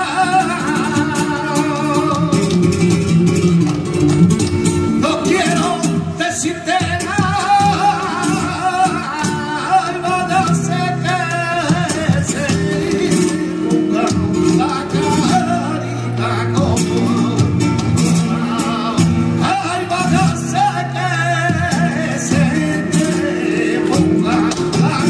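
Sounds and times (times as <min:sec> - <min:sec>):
man singing: 0:00.0 - 0:03.5, 0:04.9 - 0:25.0
flamenco guitar: 0:00.0 - 0:25.0
hand-clapping: 0:02.0 - 0:05.6.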